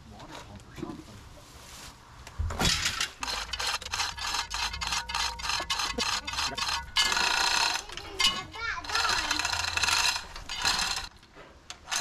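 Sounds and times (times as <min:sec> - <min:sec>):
hoist chain rattling and clicking: 0:02.7 - 0:12.0
rough scraping rush: 0:03.1 - 0:12.0.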